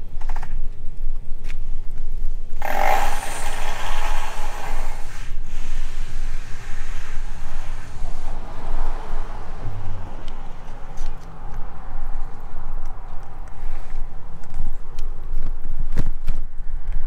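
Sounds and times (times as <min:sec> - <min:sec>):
wind rumbling on microphone: 0:00.0 - 0:17.0
loud rushing hiss: 0:02.6 - 0:09.6.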